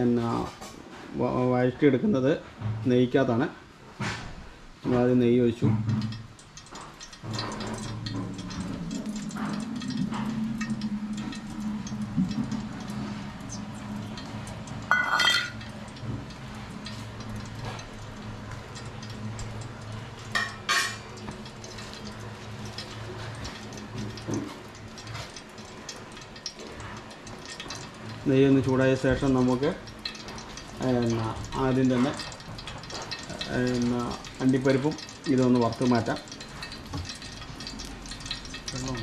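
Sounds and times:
metal pan and utensil clinking: 14.9s - 15.7s, 20.3s - 21.1s.

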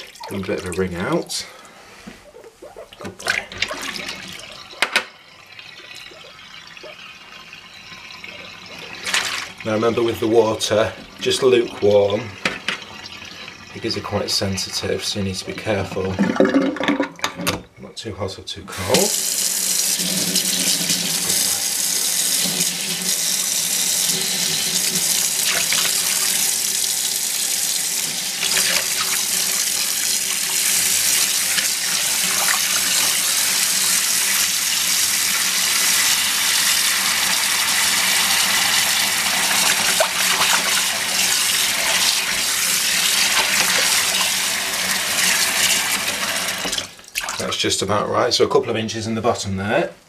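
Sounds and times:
tap water splashing into sink: 3.0s - 5.2s, 7.9s - 9.6s, 10.9s - 13.2s, 24.4s - 26.5s, 28.0s - 34.5s, 36.7s - 47.5s.

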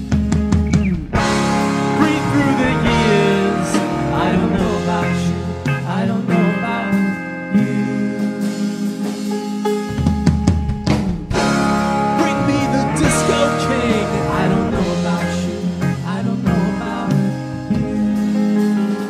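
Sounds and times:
rock band playing: 0.0s - 19.0s.

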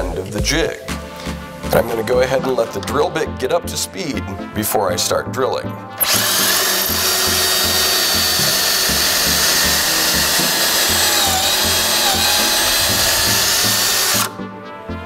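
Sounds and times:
cordless drill whining: 6.0s - 14.4s
drill bit cutting wood: 6.0s - 14.4s.

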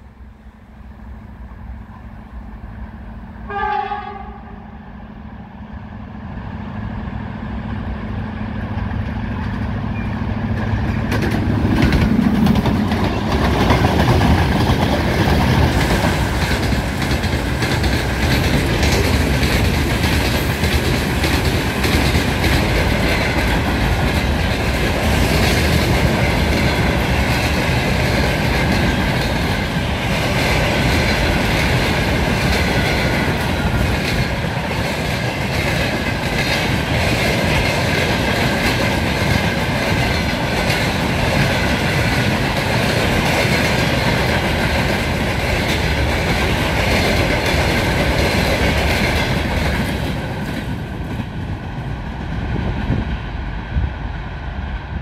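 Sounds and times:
diesel locomotive engine rumble: 0.0s - 55.0s
train horn blast: 3.4s - 4.8s
freight wagons clattering on rails: 8.8s - 51.3s.

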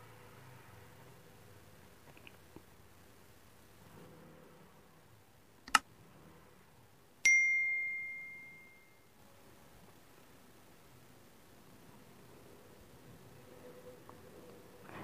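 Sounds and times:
bell ding: 7.2s - 9.0s.

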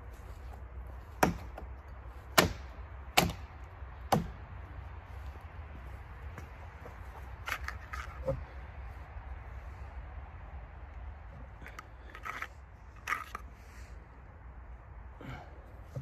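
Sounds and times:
hatchet chopping branches: 1.0s - 4.6s.

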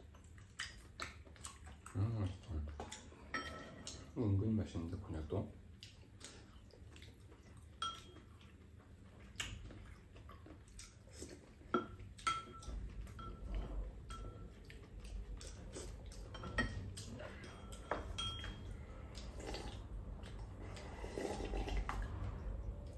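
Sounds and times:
spoons clinking against ceramic bowls: 3.3s - 4.0s, 7.8s - 8.3s, 11.7s - 14.6s, 15.8s - 18.8s.

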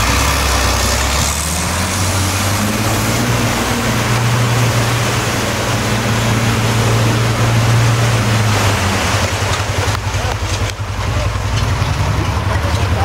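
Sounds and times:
loud rushing noise: 0.0s - 10.1s
truck engine droning: 0.0s - 13.0s
wheels churning through mud: 0.0s - 13.0s.

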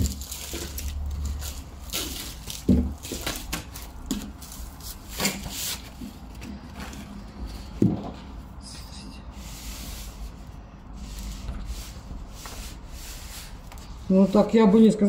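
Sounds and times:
plastic wrapping crinkling: 0.0s - 6.4s
paper roll rubbing: 9.4s - 14.8s.

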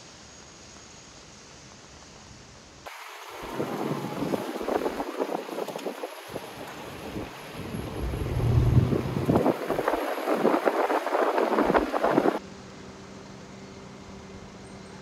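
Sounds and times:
wind buffeting microphone: 3.3s - 12.4s
steady hum: 7.3s - 12.4s.

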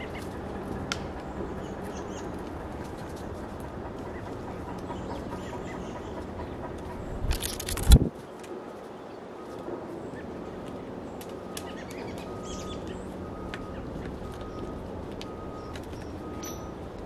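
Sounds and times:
low background rumble: 0.0s - 8.1s
bird wingbeats and thumps: 7.2s - 8.1s.

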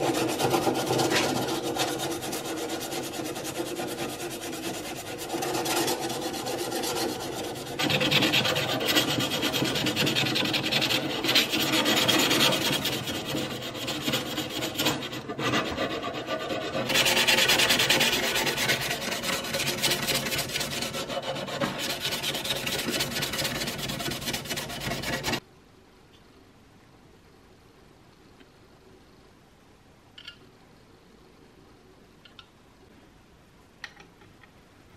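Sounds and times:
sandpaper rasping on metal: 0.0s - 25.4s.

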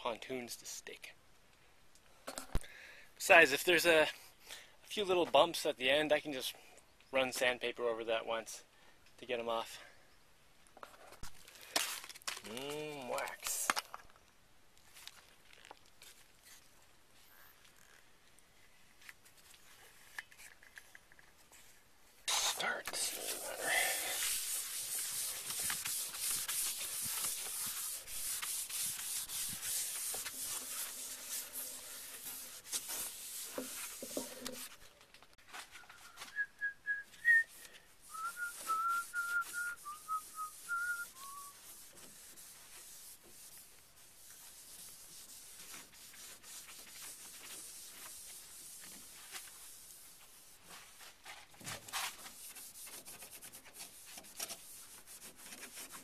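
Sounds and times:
foam pad rubbing wax: 22.3s - 34.8s, 38.0s - 51.1s, 51.9s - 56.0s
wavering whistling: 35.8s - 41.6s.

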